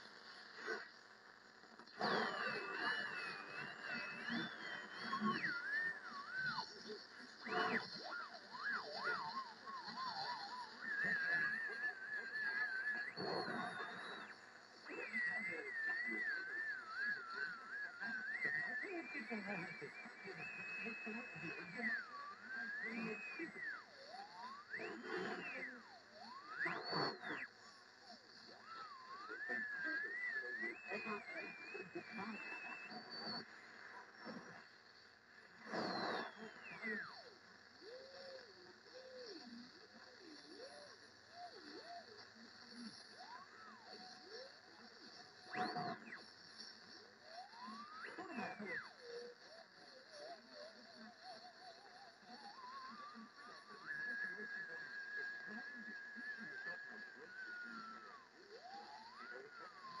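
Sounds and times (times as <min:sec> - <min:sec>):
radio static and crackle: 0:00.0 - 1:00.0
heterodyne whistle: 0:02.0 - 0:27.6, 0:28.5 - 0:33.5, 0:47.2 - 1:00.0.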